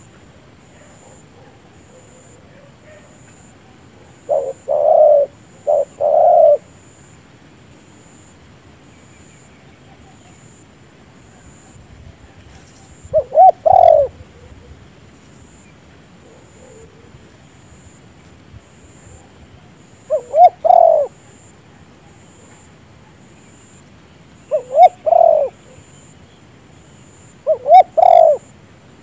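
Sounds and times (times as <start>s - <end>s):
doves cooing: 0.0s - 6.8s, 11.3s - 14.8s, 16.2s - 17.2s, 18.8s - 23.7s, 24.4s - 26.1s, 27.1s - 28.6s.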